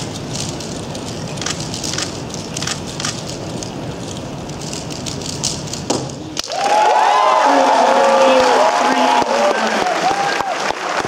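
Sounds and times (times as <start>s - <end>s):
hall background noise: 0.0s - 11.0s
voices cheering: 6.4s - 11.0s.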